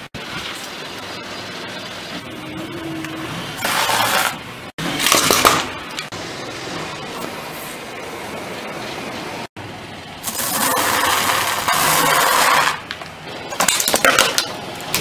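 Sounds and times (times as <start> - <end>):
tyre crushing dry noodles: 10.2 - 13.0.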